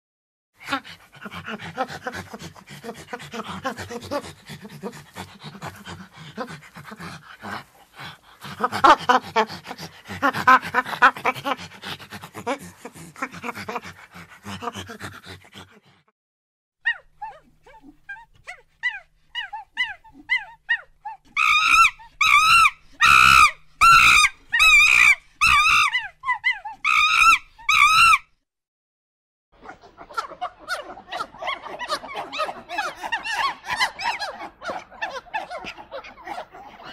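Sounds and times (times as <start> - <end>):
monkey calling: 21.4 - 28.2.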